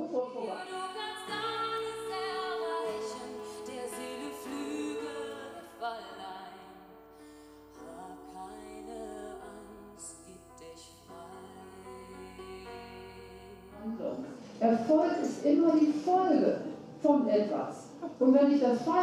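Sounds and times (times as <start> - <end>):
woman singing: 0.0 - 6.9, 7.7 - 14.0
acoustic guitar: 0.0 - 17.1
keyboard: 0.0 - 19.0.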